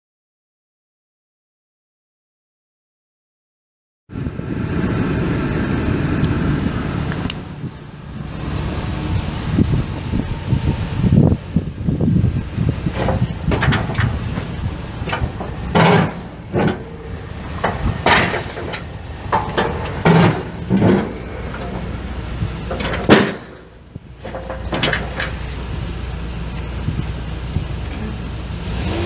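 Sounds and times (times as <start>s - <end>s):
truck engine running: 4.1s - 29.0s
sharp clunks and thuds: 12.8s - 25.4s.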